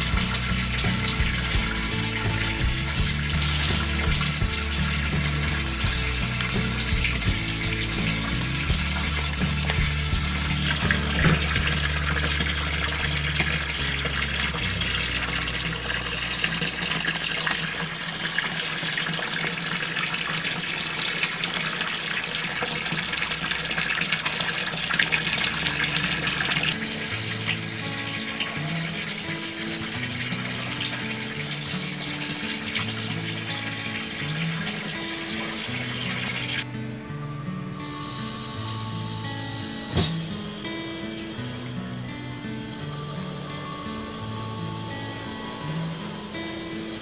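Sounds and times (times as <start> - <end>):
background music: 0.0 - 17.4, 25.5 - 47.0
water splashing and running: 0.0 - 36.6.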